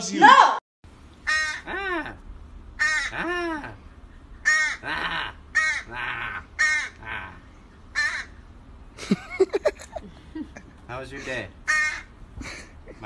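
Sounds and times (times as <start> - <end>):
crow cawing: 1.2 - 2.1, 2.8 - 3.6, 4.4 - 8.4, 11.6 - 12.2.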